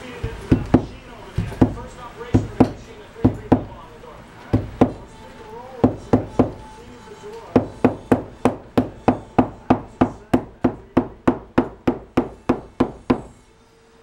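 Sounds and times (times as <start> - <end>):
hammer striking metal strip: 0.2 - 3.9.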